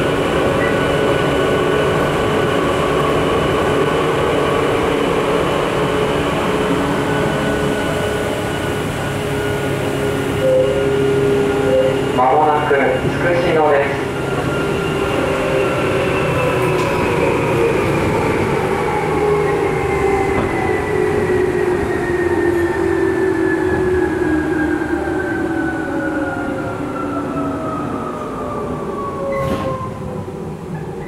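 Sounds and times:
train running rumble: 0:00.0 - 0:24.8.

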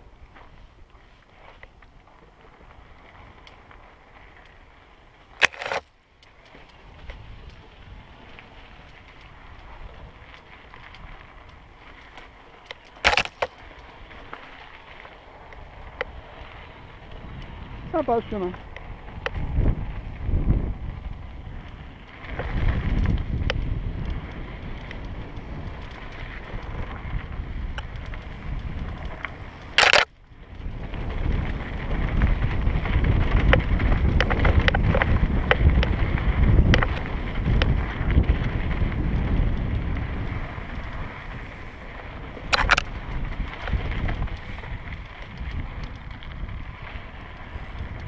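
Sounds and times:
bike tyres rolling over dirt: 0:00.0 - 0:48.0
bike clicks and knocks: 0:01.3 - 0:17.6, 0:18.5 - 0:48.0
wind buffeting microphone: 0:13.8 - 0:48.0.

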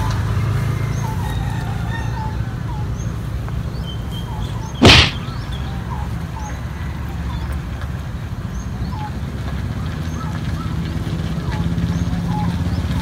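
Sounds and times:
birds chirping: 0:02.2 - 0:06.6.

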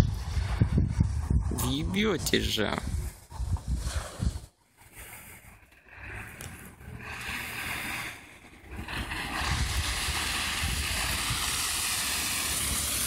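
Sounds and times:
car engine and tyres rumbling: 0:00.0 - 0:13.0
loud steady hiss: 0:07.0 - 0:13.0.

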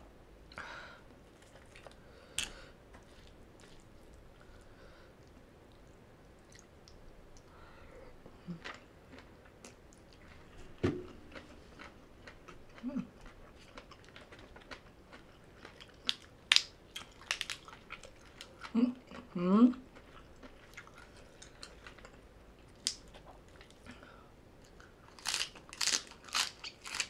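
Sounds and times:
person chewing: 0:01.4 - 0:04.6, 0:08.4 - 0:19.3, 0:19.9 - 0:23.9, 0:24.6 - 0:27.0.

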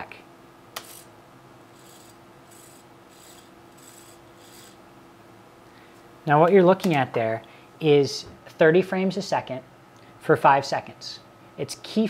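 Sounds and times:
servo motor buzzing: 0:01.7 - 0:04.8.

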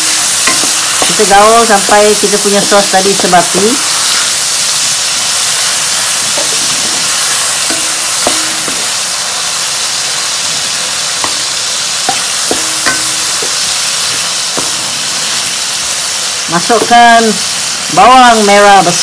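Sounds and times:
spatula scraping wok: 0:00.0 - 0:10.3
stir-fry sizzling in wok: 0:00.0 - 0:19.0.

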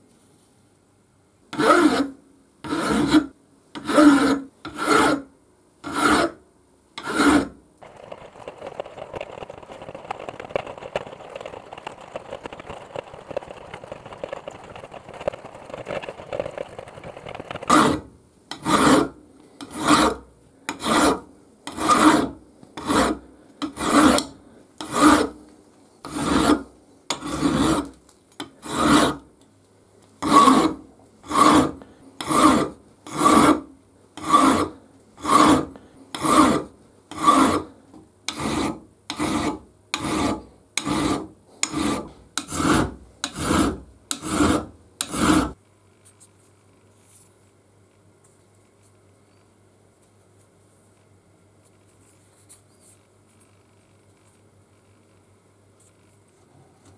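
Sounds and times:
hand file strokes on metal: 0:01.5 - 0:06.4, 0:07.0 - 0:07.6, 0:17.6 - 0:25.4, 0:26.0 - 0:29.2, 0:30.2 - 0:37.7, 0:38.3 - 0:45.6.

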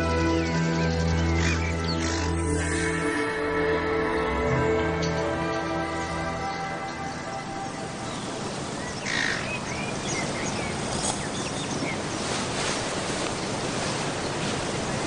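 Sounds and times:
birds chirping: 0:00.0 - 0:15.0
steady rushing wash: 0:02.5 - 0:15.0.

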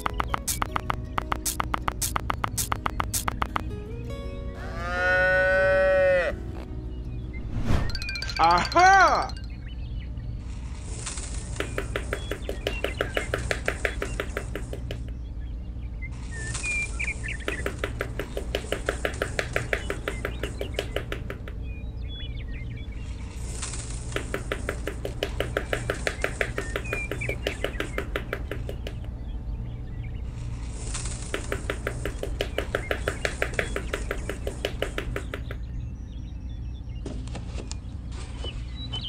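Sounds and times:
sticks tapped into sand: 0:00.0 - 0:03.7, 0:11.6 - 0:15.2, 0:17.4 - 0:21.6, 0:24.1 - 0:29.1, 0:31.2 - 0:35.6
faint bird chirps: 0:11.4 - 0:39.0.

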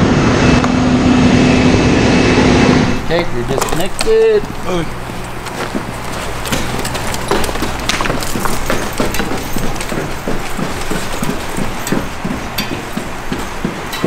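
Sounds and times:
steady low hum: 0:00.0 - 0:14.0
booted footsteps on stairs: 0:03.0 - 0:14.0
gear knocking: 0:03.0 - 0:14.0.

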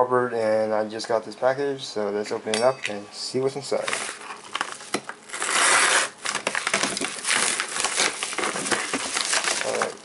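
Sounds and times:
envelope crinkling and rustling: 0:03.8 - 0:10.0.

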